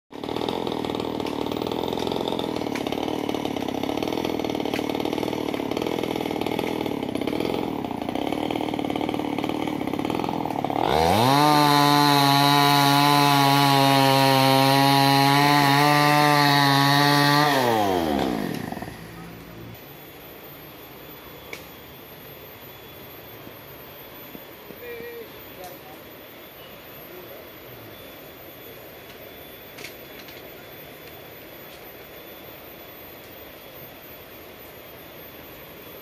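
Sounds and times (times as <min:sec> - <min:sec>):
chainsaw cutting wood: 0:00.1 - 0:19.8.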